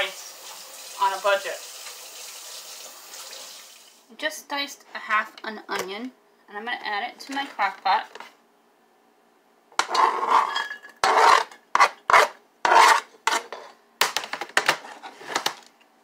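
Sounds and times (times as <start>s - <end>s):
knife scraping on cutting board: 9.8s - 13.8s.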